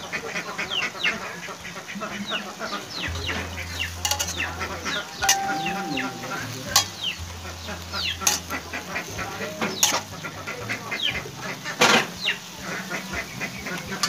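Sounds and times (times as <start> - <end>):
food sizzling in a pan: 0.3 - 14.0
metal spatula scraping a wok: 4.0 - 4.5, 9.8 - 10.1.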